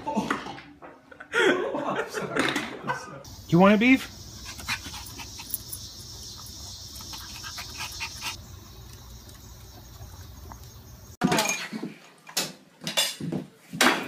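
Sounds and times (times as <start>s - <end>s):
insects chirring: 3.3s - 11.2s.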